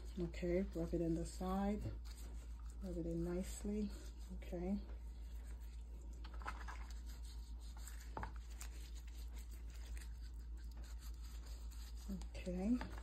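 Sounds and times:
gloved hands rubbing fish skin: 0.0 - 13.0
low steady hum: 0.0 - 13.0.

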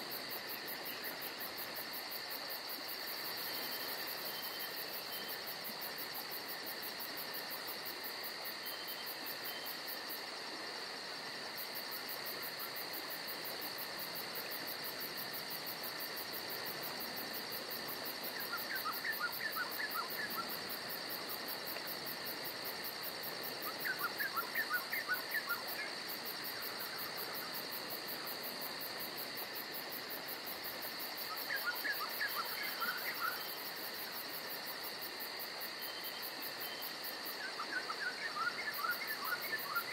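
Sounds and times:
insects buzzing: 0.0 - 39.9
rapid insect chirping: 0.0 - 39.9.

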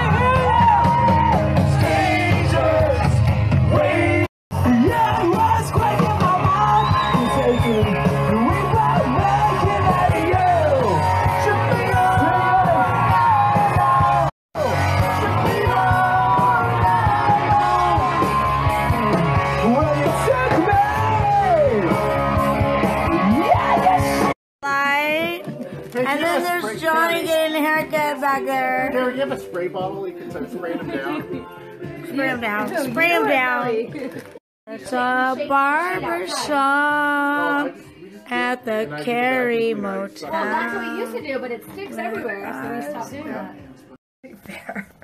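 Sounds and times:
rock band with singer: 0.0 - 24.4.

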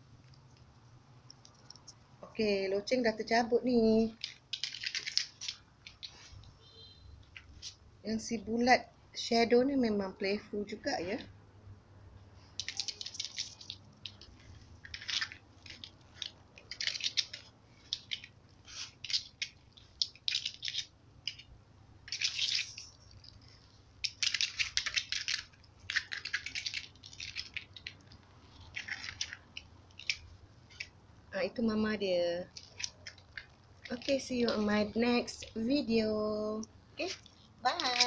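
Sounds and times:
claws scratching on plastic sheet: 12.6 - 21.5.

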